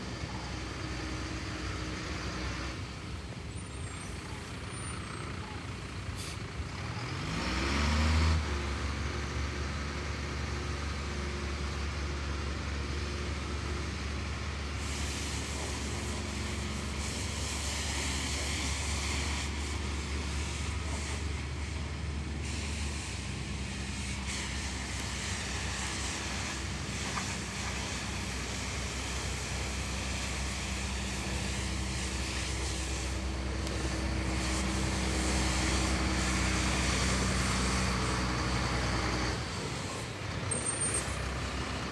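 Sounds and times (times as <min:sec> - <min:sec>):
truck engine running: 0:00.0 - 0:41.9.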